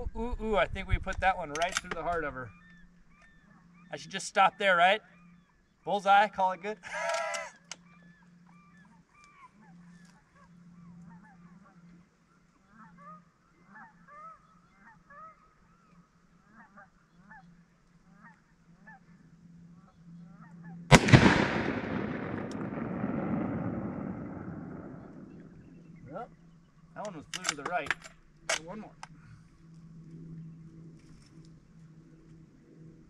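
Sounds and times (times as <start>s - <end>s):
faint bird calls: 1.4s - 33.0s
rifle shot with echo: 20.9s - 26.0s.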